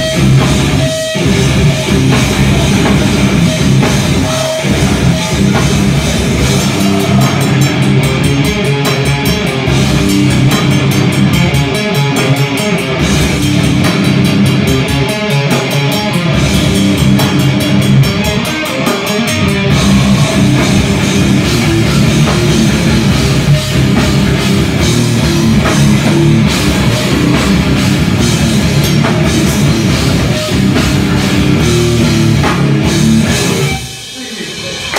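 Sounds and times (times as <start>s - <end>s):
hardcore band playing live: 0.0s - 34.9s
vocals: 2.5s - 8.2s.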